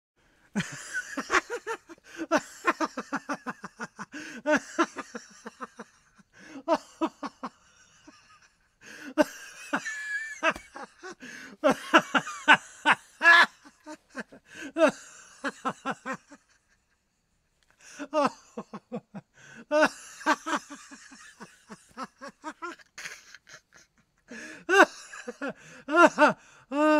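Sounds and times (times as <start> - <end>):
man laughing hard: 0.6 - 17.0, 17.8 - 26.9.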